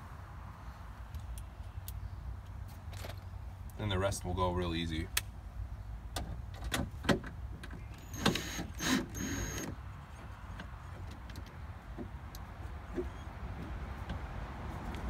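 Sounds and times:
cordless drill whining: 8.2 - 9.7.

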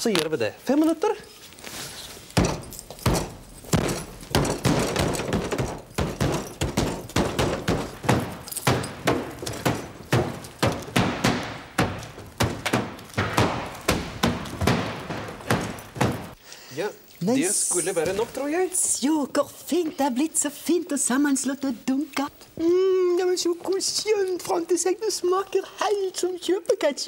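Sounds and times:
wet thumps of pounding tomatoes: 2.4 - 16.4.

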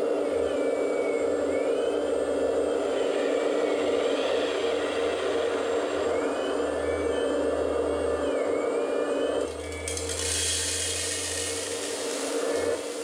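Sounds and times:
hydraulic pump whining: 4.6 - 13.0
gravel pouring into plastic bed: 9.6 - 13.0.

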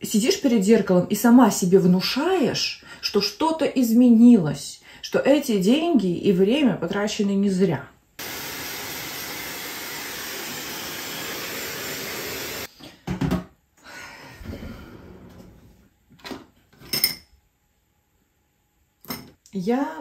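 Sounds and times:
hair dryer blowing: 8.2 - 12.7.

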